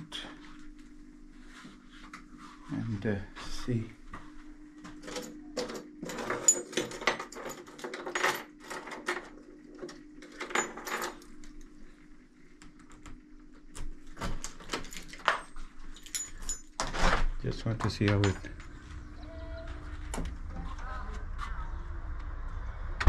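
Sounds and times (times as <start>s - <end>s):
steady low hum: 0.0s - 23.0s
keys jangling: 14.7s - 16.8s.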